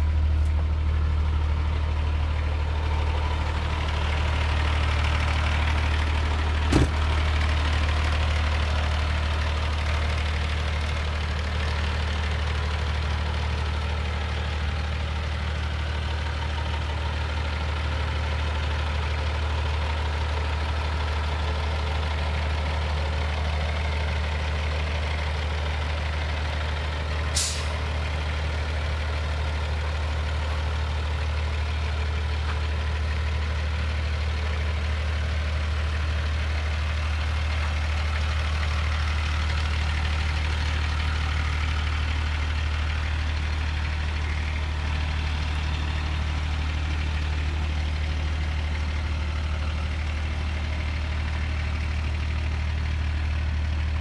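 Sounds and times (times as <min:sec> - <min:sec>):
diesel truck engine idling: 0:00.0 - 0:54.0
air brake hiss: 0:27.4 - 0:27.8.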